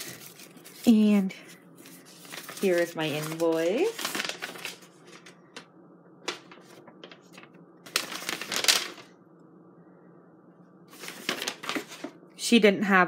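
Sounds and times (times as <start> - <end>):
paper rustling: 0.0 - 9.1, 10.9 - 12.2.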